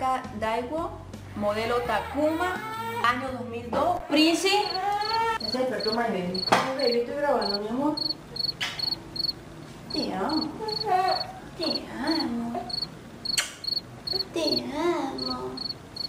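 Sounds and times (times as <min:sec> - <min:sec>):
cricket chirping: 0:04.6 - 0:16.0.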